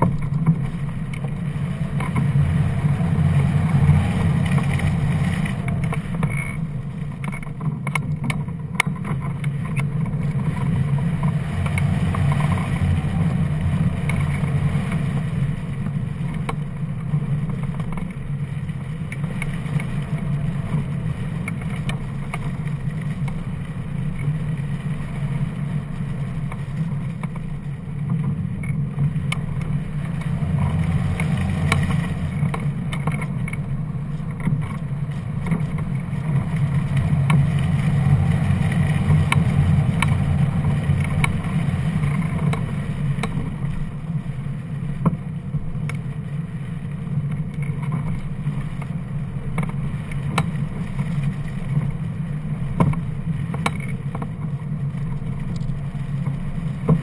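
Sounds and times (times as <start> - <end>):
wind rumbling on microphone: 0.0 - 57.0
faint ticks: 26.4 - 43.5, 45.8 - 46.4, 52.8 - 57.0.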